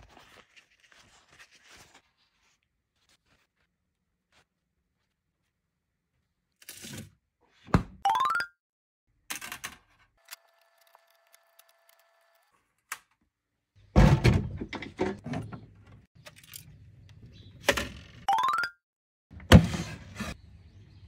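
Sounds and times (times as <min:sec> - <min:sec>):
knocks and clatter on metal racks: 0:13.9 - 0:16.0.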